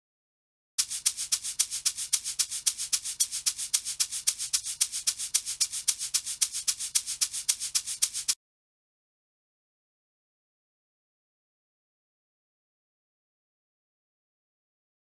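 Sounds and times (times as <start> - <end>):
shaker percussion loop: 0.8 - 8.4.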